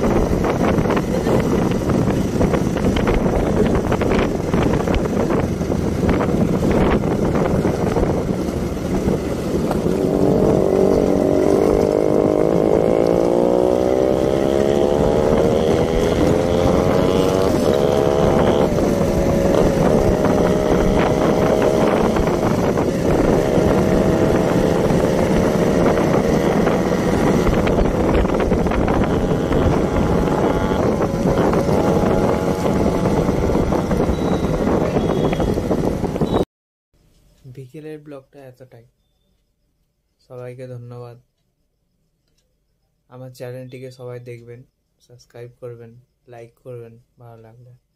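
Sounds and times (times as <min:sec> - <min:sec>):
motorcycle engine running: 0:00.0 - 0:36.4
wind on microphone: 0:00.0 - 0:36.4.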